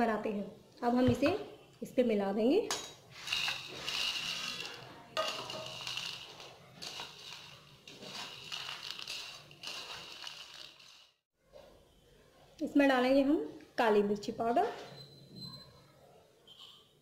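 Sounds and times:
spoon stirring dry puffed pearls: 3.1 - 11.2.

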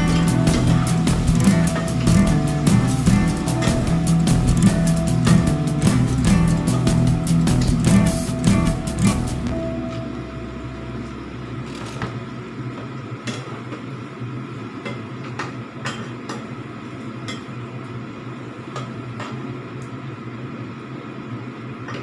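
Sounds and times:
steady low hum: 0.0 - 15.8.

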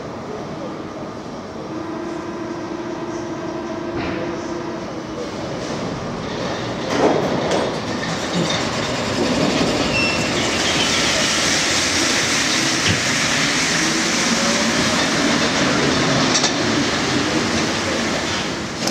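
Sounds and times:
metro trains rolling rumble: 0.0 - 18.9
thin train squeals: 8.2 - 14.1.

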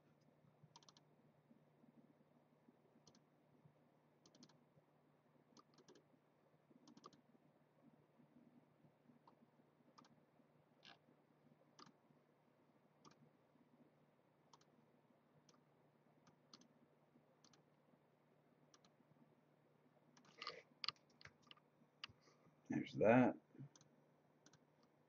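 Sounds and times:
keyboard and mouse clicks: 0.7 - 1.1, 3.0 - 3.2, 4.2 - 4.6, 5.6 - 6.0, 6.8 - 7.2, 11.8 - 12.0, 13.0 - 13.2, 14.5 - 14.7, 16.3 - 16.7, 17.4 - 17.6, 18.7 - 19.0, 20.2 - 22.2, 23.7 - 24.9.

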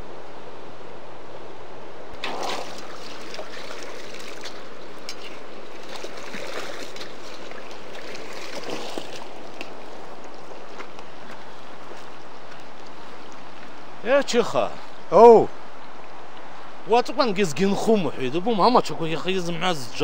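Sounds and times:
river water rushing: 2.2 - 14.8.

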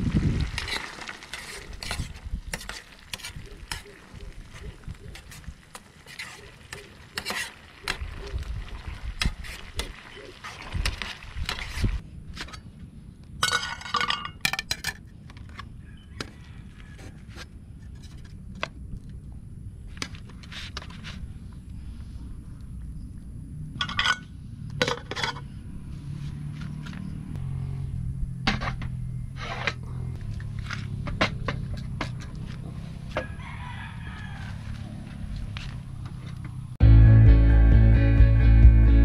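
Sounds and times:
metal spoon scraping pan: 5.1 - 8.0.

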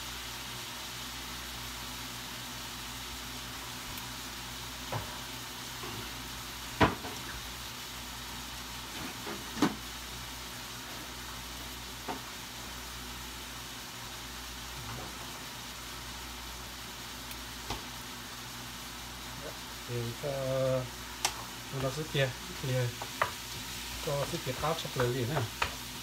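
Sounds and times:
pan sizzling: 0.0 - 26.0.

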